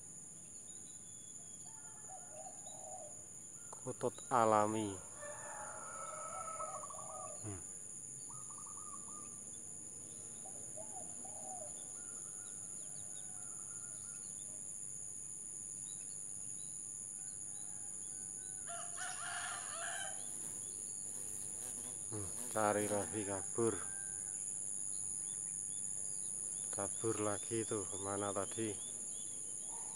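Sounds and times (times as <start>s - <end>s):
high-pitched insect drone: 3.8s - 12.7s, 19.0s - 29.9s.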